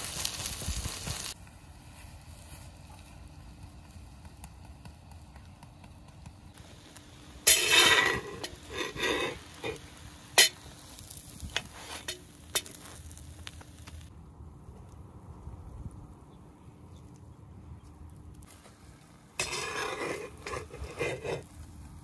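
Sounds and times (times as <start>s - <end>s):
food sizzling in oil: 0.0s - 1.4s, 6.6s - 14.1s, 19.4s - 21.5s
metal spatula scraping pan: 7.4s - 9.8s, 10.4s - 10.6s, 11.6s - 12.8s, 19.4s - 21.4s.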